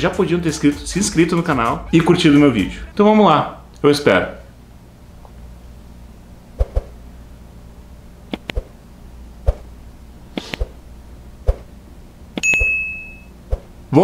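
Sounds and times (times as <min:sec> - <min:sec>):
low steady hum: 0:00.0 - 0:14.0
bright bell ding: 0:12.4 - 0:13.3.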